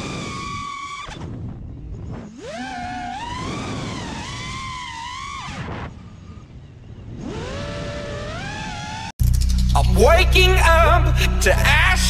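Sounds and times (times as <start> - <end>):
quadcopter motors whining: 0.0 - 9.6.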